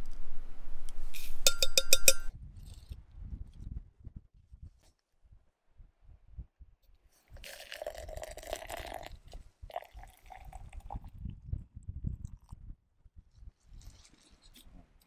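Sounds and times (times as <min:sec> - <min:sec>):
water pouring into tumbler: 0:07.4 - 0:11.1.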